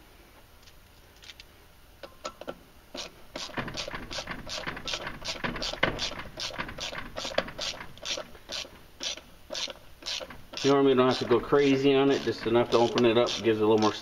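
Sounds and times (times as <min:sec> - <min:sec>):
ratchet wrench clicking: 0:03.0 - 0:14.0.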